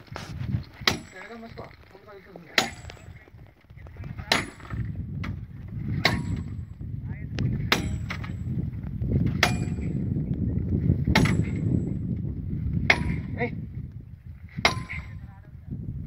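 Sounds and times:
hammer clanging on steel: 0:00.8 - 0:01.5, 0:02.5 - 0:03.2, 0:06.0 - 0:06.6, 0:07.7 - 0:08.5, 0:09.4 - 0:10.0, 0:11.1 - 0:11.9, 0:12.9 - 0:13.4, 0:14.6 - 0:15.2.

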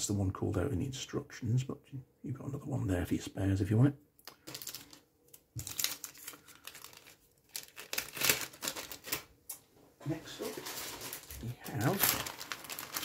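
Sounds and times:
plastic bags crinkling: 0:04.2 - 0:09.3, 0:10.2 - 0:13.0.

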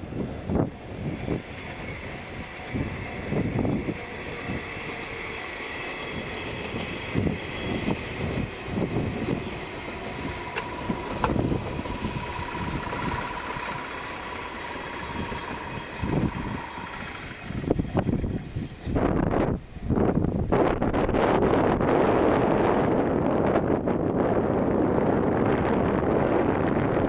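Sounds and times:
electric train running past: 0:00.0 - 0:27.0
steady high tone: 0:00.6 - 0:18.5
wheels knocking on track: 0:01.4 - 0:19.0.

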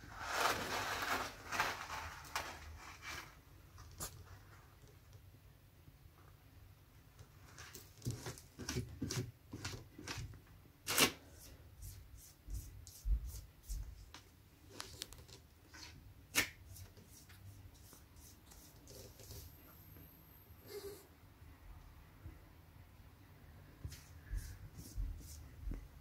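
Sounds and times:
loud scrapes: 0:00.0 - 0:03.4
cat scratching in litter: 0:00.0 - 0:04.4.

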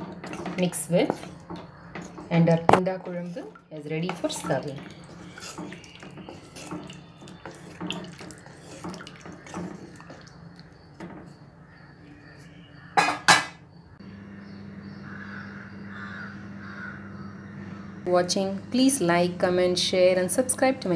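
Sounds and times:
metal spoon scraping clay pot: 0:00.0 - 0:11.4
steady low hum: 0:13.8 - 0:20.9.

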